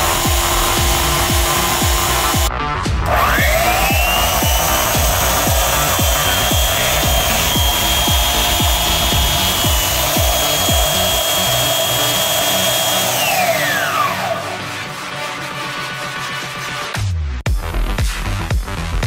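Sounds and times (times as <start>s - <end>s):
belt sander whining: 0.0s - 14.7s
background music with thumping beat: 0.0s - 19.0s.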